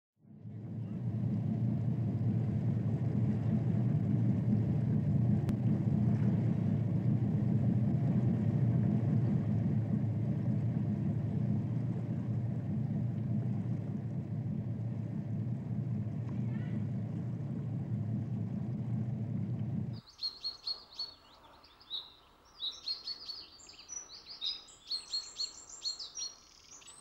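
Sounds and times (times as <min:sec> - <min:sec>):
low rumbling drone: 0:00.2 - 0:20.0.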